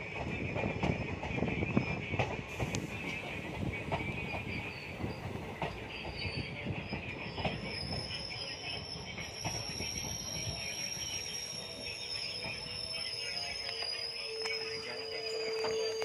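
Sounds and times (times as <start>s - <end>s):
train wheels clicking over joints: 0.0s - 14.6s
steady train rumble: 0.0s - 16.0s
high wheel squeal: 2.6s - 16.0s.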